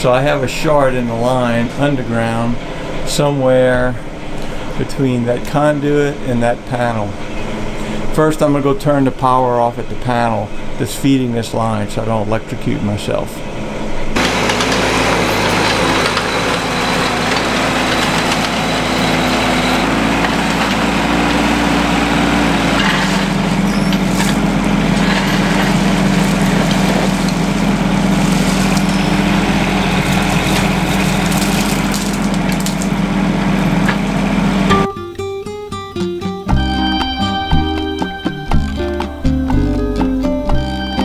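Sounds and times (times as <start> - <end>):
diesel engine running: 0.0 - 35.1
bucket digging into gravel: 22.6 - 33.0.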